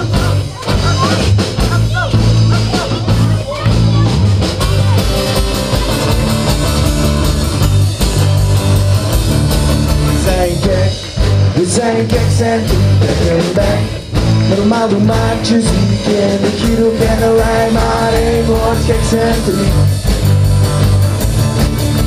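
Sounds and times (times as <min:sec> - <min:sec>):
live rock band playing: 0:00.0 - 0:22.0
accordion: 0:04.5 - 0:22.0.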